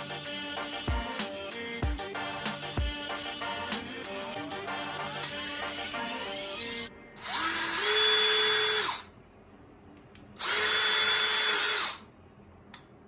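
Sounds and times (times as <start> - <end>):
cordless drill motor whine: 7.2 - 9.1, 10.4 - 12.1.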